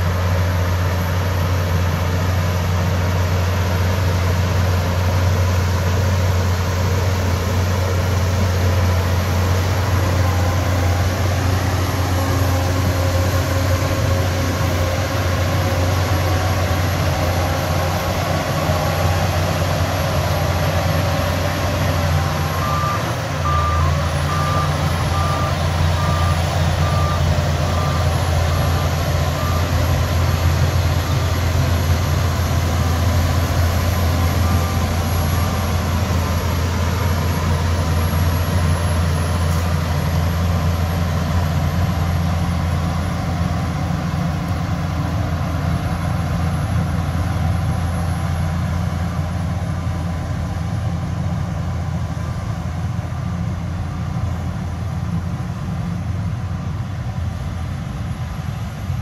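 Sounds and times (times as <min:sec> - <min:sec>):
bulldozer diesel engine running: 0:00.0 - 0:59.0
backup alarm beeping: 0:21.8 - 0:31.8, 0:33.8 - 0:38.3.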